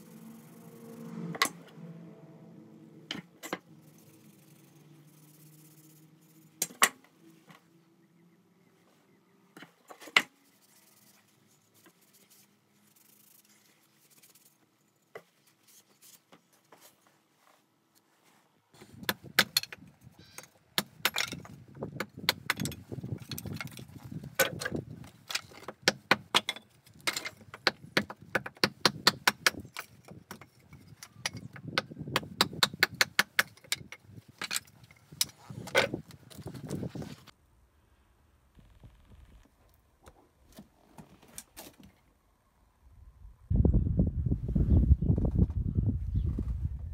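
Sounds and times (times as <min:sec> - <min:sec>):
hatchet chopping wooden boards: 0:19.0 - 0:19.8, 0:20.8 - 0:22.8, 0:25.6 - 0:30.4, 0:31.2 - 0:33.9.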